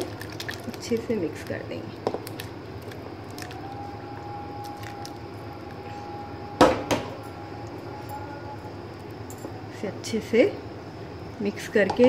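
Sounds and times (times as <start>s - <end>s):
thick curry pouring: 0.0s - 1.0s.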